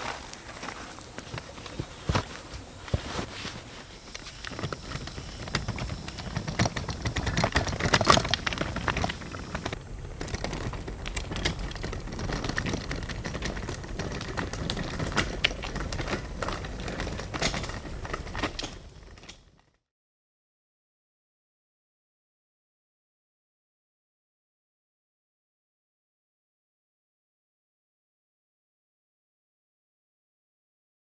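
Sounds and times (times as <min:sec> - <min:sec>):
wagon rattling over stone paving: 0:00.0 - 0:19.8.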